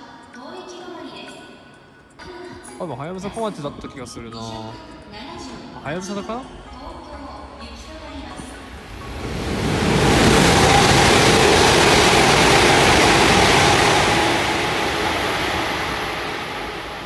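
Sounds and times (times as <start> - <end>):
high-speed train passing: 5.5 - 17.0.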